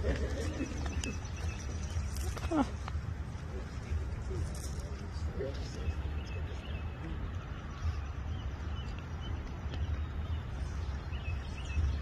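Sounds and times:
bird chirping: 0:00.0 - 0:12.0.

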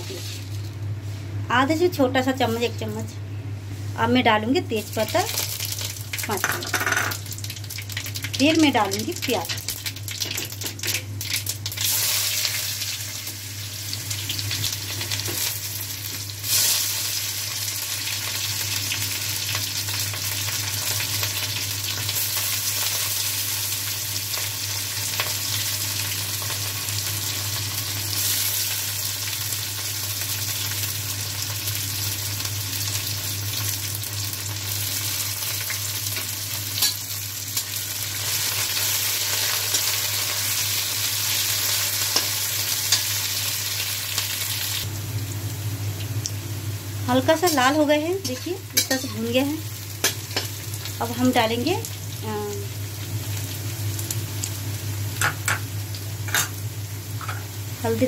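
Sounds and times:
onions sizzling in hot oil: 0:04.4 - 0:58.0.

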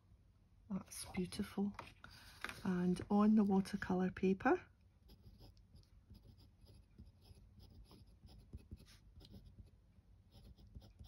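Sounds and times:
pen nib scratching paper: 0:05.0 - 0:11.0.

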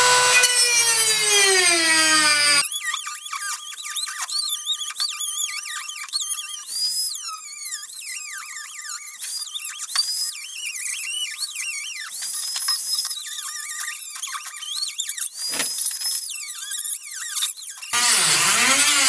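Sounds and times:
cut-off wheel cutting sheet metal: 0:00.0 - 0:02.6, 0:18.0 - 0:19.0.

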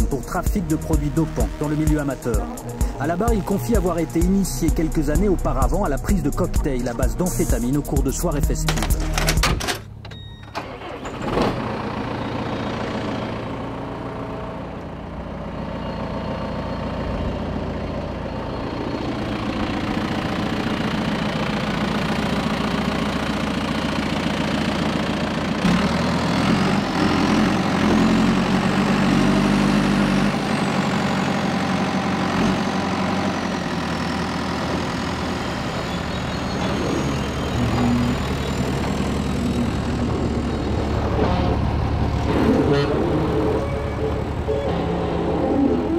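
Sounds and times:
diesel tractor engine: 0:00.0 - 0:45.9
high hydraulic whine: 0:35.9 - 0:45.9.

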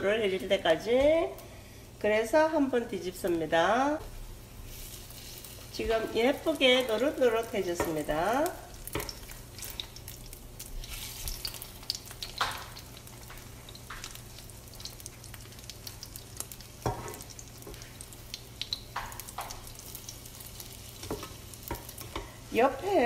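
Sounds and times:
bread frying in oil: 0:02.3 - 0:23.0
spatula knocking and scraping pan: 0:07.7 - 0:08.2, 0:08.8 - 0:09.2, 0:16.8 - 0:17.9, 0:18.9 - 0:19.6, 0:21.0 - 0:22.4.

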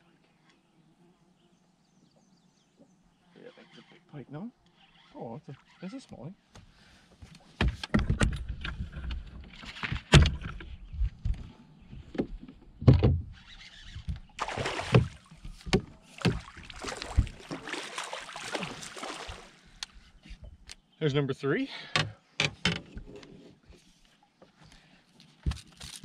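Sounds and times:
fish splashing in water: 0:14.4 - 0:15.5, 0:16.1 - 0:19.7
knocks against boat: 0:14.9 - 0:16.5, 0:17.1 - 0:17.5.

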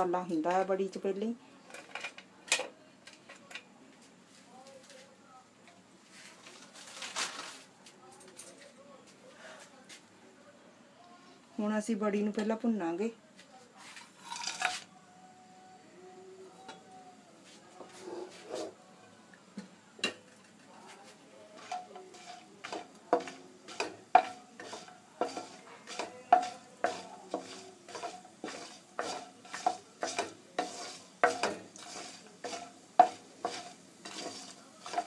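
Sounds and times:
light sizzle: 0:00.0 - 0:08.1, 0:11.0 - 0:35.0
wooden spoon stirring in pan: 0:17.4 - 0:18.8, 0:20.5 - 0:35.0
spoon knocking against pan: 0:21.6 - 0:35.0.

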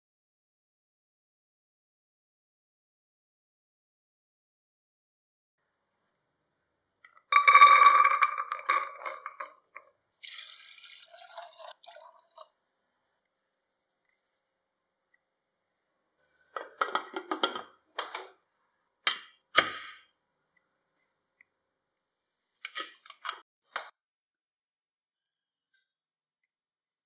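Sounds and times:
chickpeas clattering into metal pot: 0:07.2 - 0:09.8.

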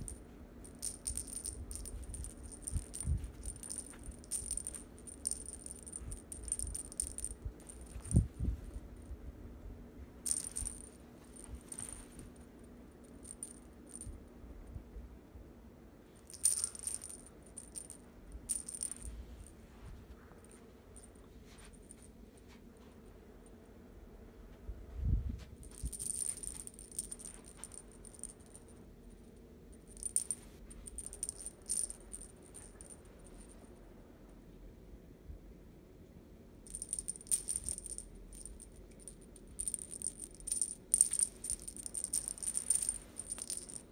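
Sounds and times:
toy jingling and rattling: 0:00.0 - 0:08.3, 0:10.3 - 0:12.2, 0:13.2 - 0:14.1, 0:16.3 - 0:19.1, 0:25.6 - 0:28.6, 0:29.9 - 0:33.0, 0:36.7 - 0:43.9.

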